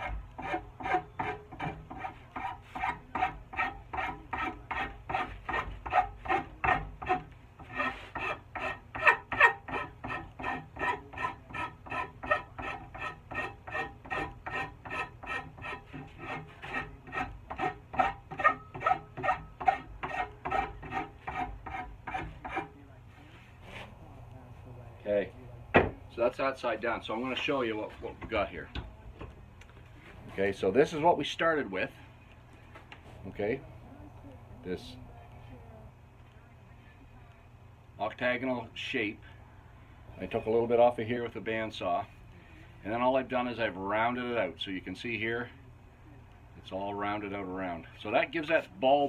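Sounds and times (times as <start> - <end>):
file rasping on wood: 0.0 - 22.7.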